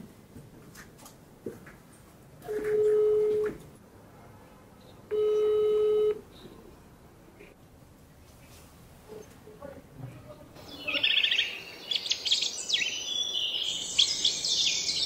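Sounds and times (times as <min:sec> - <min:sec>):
phone ringback tone beeps: 0:02.7 - 0:03.4, 0:05.1 - 0:06.2.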